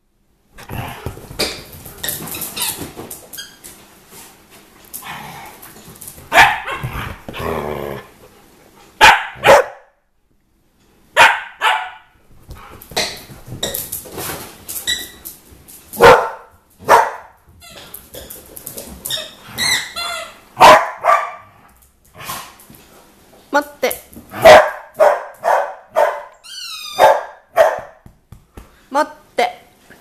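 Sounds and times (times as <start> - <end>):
dogs barking: 6.3 - 6.9, 9.0 - 9.9, 11.2 - 12.1, 16.0 - 17.4, 20.6 - 21.5, 24.4 - 26.4, 27.0 - 28.0
squeaky rubber toy: 19.1 - 20.4, 26.4 - 27.0
dog yips: 26.0 - 27.8.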